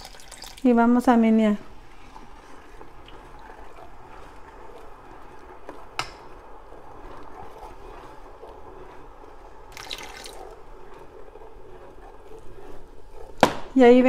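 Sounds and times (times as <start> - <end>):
vinegar trickling into milk: 0.0 - 0.7, 9.6 - 11.0.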